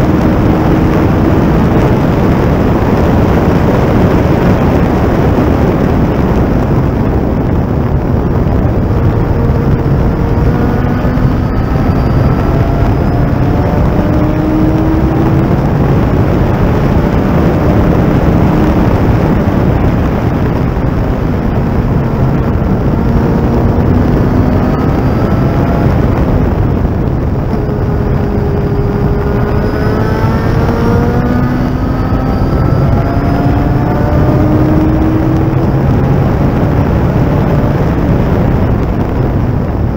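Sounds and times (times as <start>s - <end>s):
race car engine at speed: 0.0s - 39.9s
wind and road noise: 0.0s - 39.9s.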